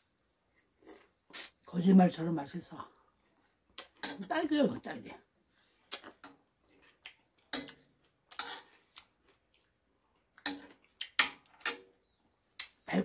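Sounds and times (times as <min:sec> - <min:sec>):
chewing: 0:05.7 - 0:11.6
metal spoon scraping ceramic plate: 0:07.6 - 0:08.7.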